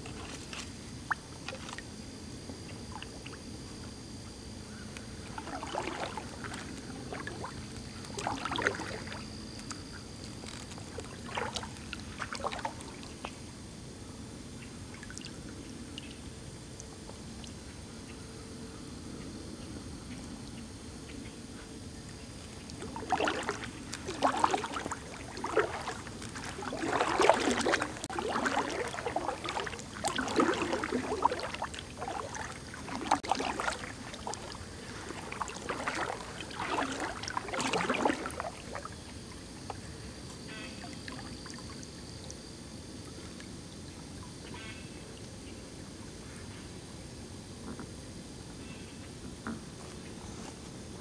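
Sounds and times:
kayak paddle splashing water: 5.3s - 9.3s, 10.4s - 13.2s, 22.7s - 39.8s.

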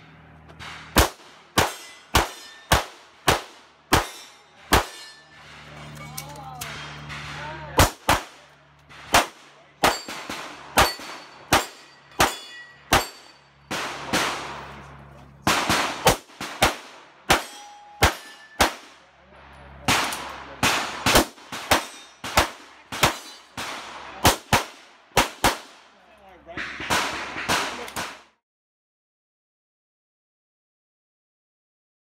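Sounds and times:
steel targets ringing: 0.6s - 3.0s, 3.9s - 8.4s, 9.0s - 14.8s, 17.3s - 19.1s, 20.8s - 23.6s
pistol shots: 0.9s - 5.0s, 6.8s - 14.8s, 15.4s - 19.0s, 19.9s - 25.8s, 26.6s - 28.2s.

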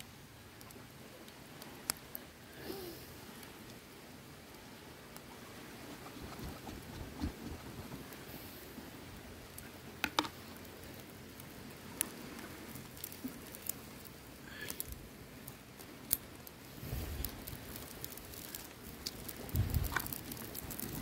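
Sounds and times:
faint steady hiss: 0.0s - 21.0s
wood fire crackling: 0.0s - 21.0s
sharp fire pops: 11.4s - 21.0s
soft low rumble: 16.7s - 21.0s.

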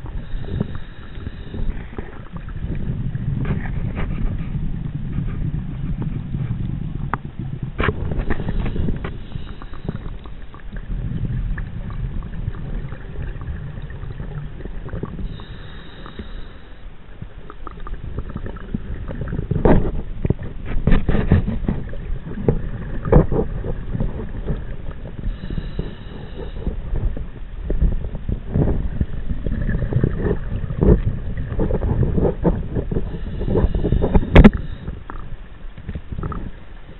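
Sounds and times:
diver inhaling through regulator: 0.0s - 2.6s, 8.0s - 11.2s, 15.0s - 17.0s, 21.1s - 27.2s, 32.4s - 35.3s
exhaled bubbles crackling: 0.0s - 36.9s
low rumble of water: 0.0s - 36.9s.

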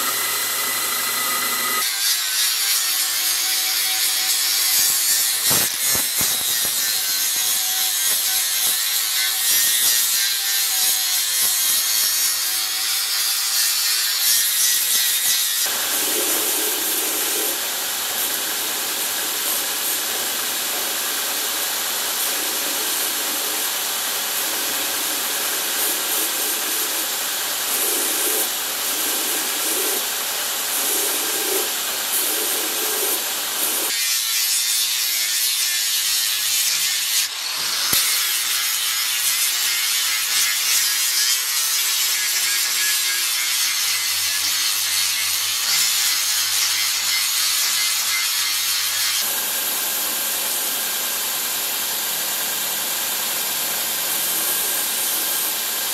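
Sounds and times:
belt grinder sanding steel: 0.0s - 49.3s
angle grinder grinding steel: 0.0s - 51.3s.

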